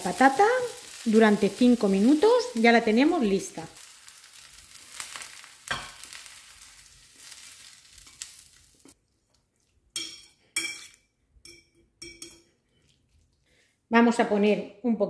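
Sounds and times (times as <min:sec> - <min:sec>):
oil and vegetables sizzling: 0:00.0 - 0:09.0
fork clinking against bowl: 0:10.0 - 0:12.5.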